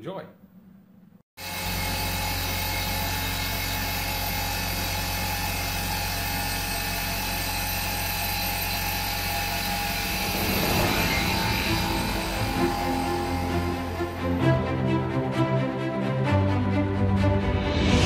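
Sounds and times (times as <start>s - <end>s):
milling machine cutting metal: 1.4s - 14.4s.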